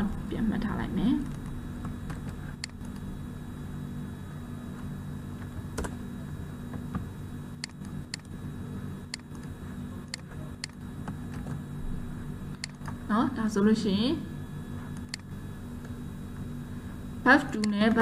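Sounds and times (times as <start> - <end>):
low hum: 0.0 - 18.0
computer mouse clicks: 2.2 - 3.0, 7.6 - 8.3, 10.1 - 10.8, 12.6 - 13.0, 15.0 - 15.3.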